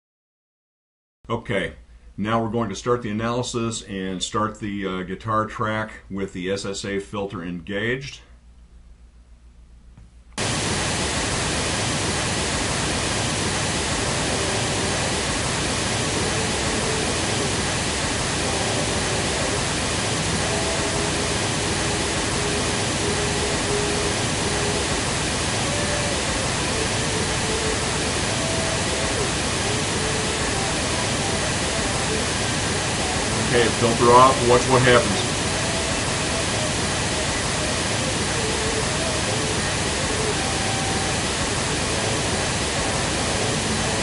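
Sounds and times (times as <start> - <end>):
loud steady pink noise: 10.4 - 44.0
faint electric guitar music: 13.2 - 44.0.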